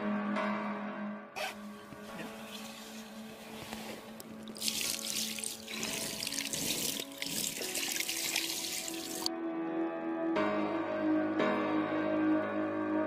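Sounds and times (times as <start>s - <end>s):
background music: 0.0s - 13.0s
water splashing and sloshing: 3.6s - 9.3s.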